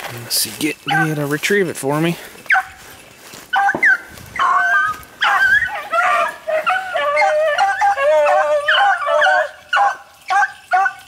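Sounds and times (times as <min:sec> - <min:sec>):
dogs yelping and howling: 0:00.8 - 0:01.3, 0:02.4 - 0:11.0.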